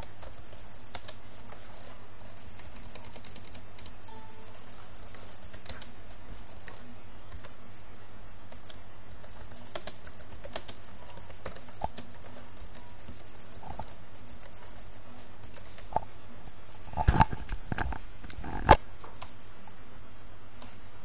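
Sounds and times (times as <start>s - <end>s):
keyboard typing: 0.0s - 7.6s, 8.5s - 16.1s
steady low hum: 0.0s - 21.0s.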